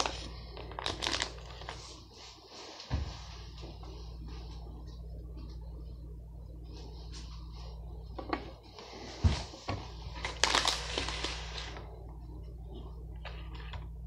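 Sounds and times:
packaging crinkling and rustling: 0.0s - 2.0s, 10.1s - 11.9s.

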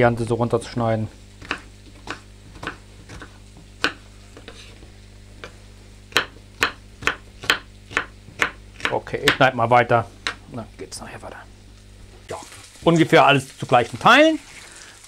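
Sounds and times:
knife chopping on wooden board: 1.4s - 4.7s, 5.4s - 9.5s.

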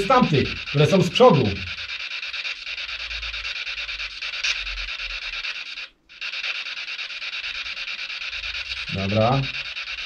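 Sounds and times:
pulsing radio static hiss: 0.0s - 2.0s.

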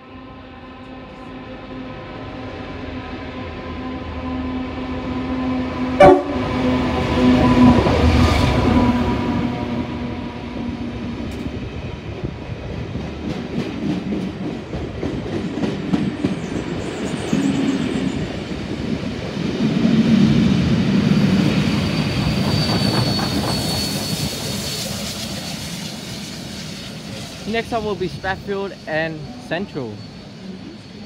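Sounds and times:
train coaches rumbling: 0.3s - 31.0s
high wheel squeal: 21.0s - 31.0s.

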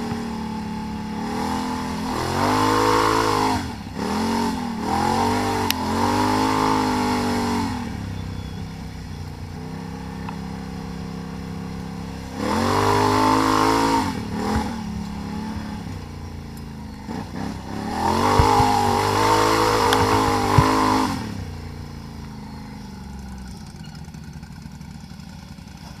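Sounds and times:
atv engine revving: 0.0s - 26.0s
sharp engine knocks: 17.9s - 21.4s.

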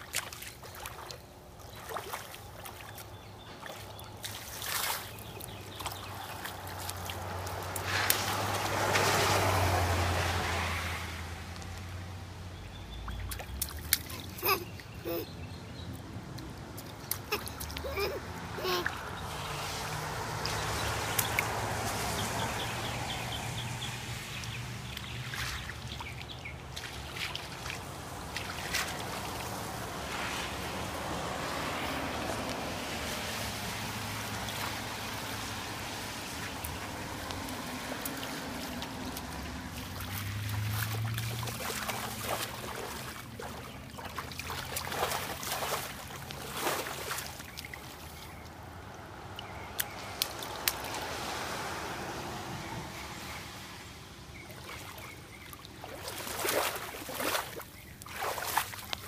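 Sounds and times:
hands splashing in puddle: 0.0s - 10.7s, 13.1s - 15.0s, 16.3s - 22.6s, 24.1s - 51.8s, 55.6s - 59.0s
water trickling: 0.0s - 10.8s, 16.4s - 52.4s.

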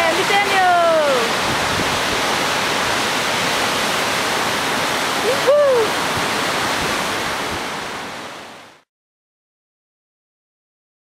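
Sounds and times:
wind on microphone: 0.0s - 8.3s.

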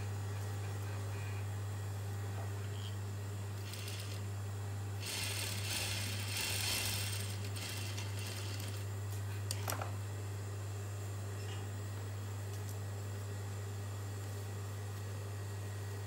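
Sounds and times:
electric hum: 0.0s - 16.0s
sewing machine stitching: 3.6s - 4.2s, 5.0s - 8.8s.

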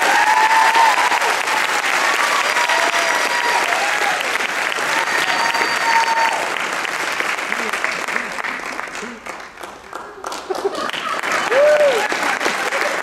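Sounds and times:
people cheering and whooping: 0.0s - 6.6s, 10.5s - 13.0s
audience applauding: 0.0s - 13.0s.

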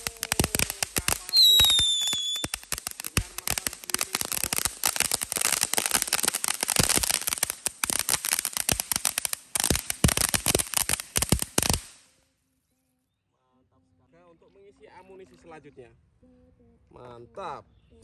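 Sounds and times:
firework fountain crackling: 0.0s - 12.2s.

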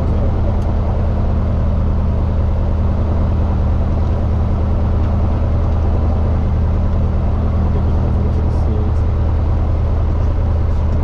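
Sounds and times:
propeller aircraft engine running: 0.0s - 11.0s.

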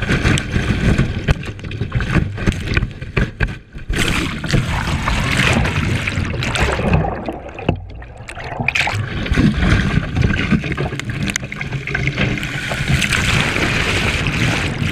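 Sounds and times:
water rushing and splashing: 3.8s - 14.9s.

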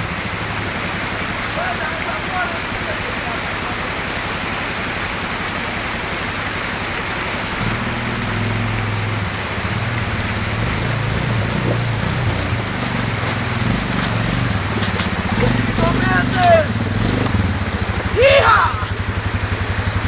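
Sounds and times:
atv engine running: 0.0s - 20.0s
creek water rushing over rocks: 0.0s - 20.0s.

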